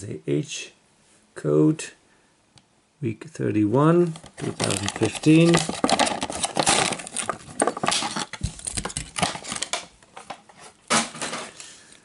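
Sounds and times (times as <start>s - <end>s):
plastic packaging crackling and ripping: 4.1s - 10.4s.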